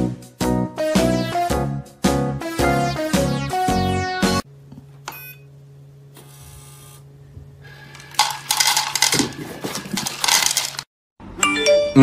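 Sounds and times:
pet food rattling into bowl: 8.0s - 10.9s.

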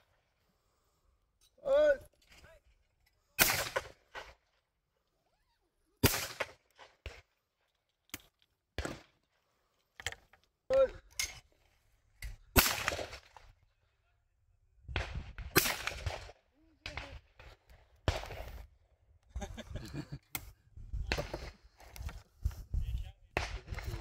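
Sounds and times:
shotgun shots: 3.4s - 4.4s, 6.0s - 7.2s, 12.5s - 13.3s, 15.0s - 18.6s.

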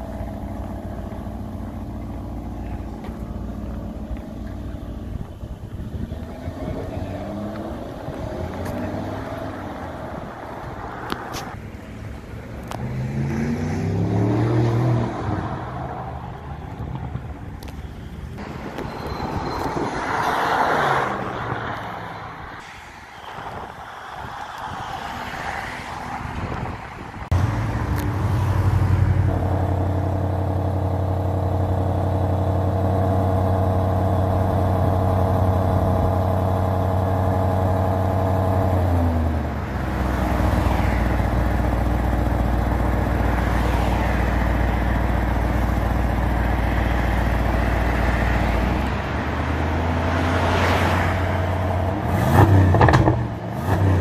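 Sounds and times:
car engine starting and idling: 0.0s - 24.8s, 27.2s - 54.0s
engine revving sharply: 12.7s - 15.9s, 47.9s - 54.0s.

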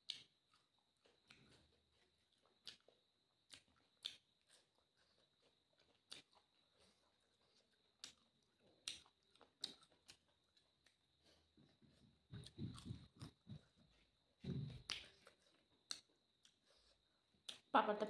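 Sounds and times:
wet mouth clicks and smacks: 3.5s - 4.6s, 8.8s - 11.0s, 14.8s - 16.6s.

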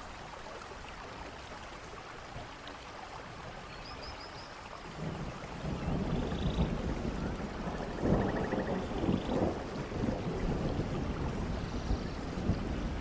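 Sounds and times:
rain hiss: 0.0s - 13.0s
thunder rumbling: 5.0s - 13.0s.

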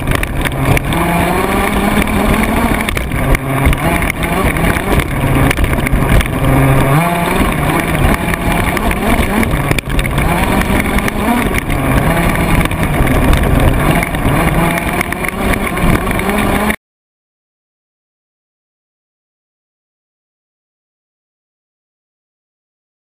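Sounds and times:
chassis rattle and ground rush: 0.0s - 16.8s
rc buggy motor revving: 0.0s - 16.8s.

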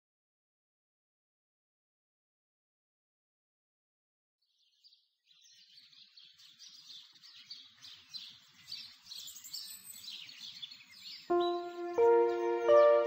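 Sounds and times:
small birds chirping chorus: 4.4s - 13.0s.

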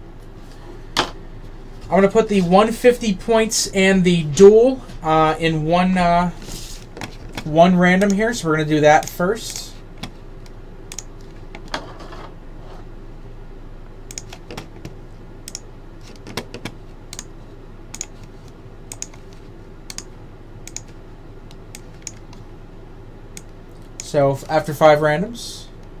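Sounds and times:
steady low hum: 0.0s - 26.0s
computer keyboard typing: 15.5s - 17.3s, 17.9s - 18.2s, 18.9s - 19.3s, 19.9s - 20.1s, 20.7s - 21.0s, 21.8s - 22.4s.

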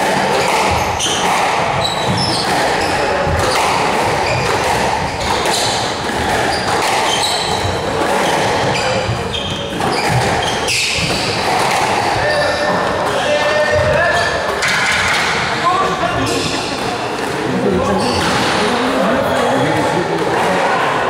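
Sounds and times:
squash ball cracking off rackets: 0.0s - 15.4s
shoes squeaking on wooden floor: 0.3s - 14.8s, 15.4s - 20.0s.

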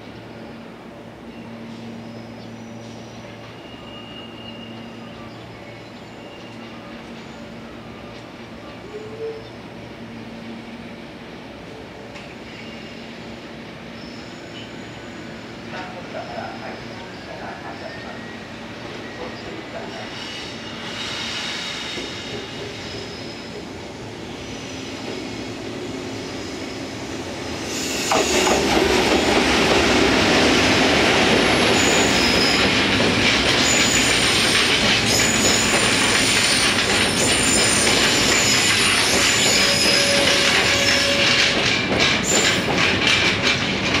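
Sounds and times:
electric locomotive passing: 0.0s - 44.0s
wheels squealing on rails: 1.2s - 9.9s, 11.7s - 44.0s
wheels clacking over rail joints: 28.1s - 44.0s.

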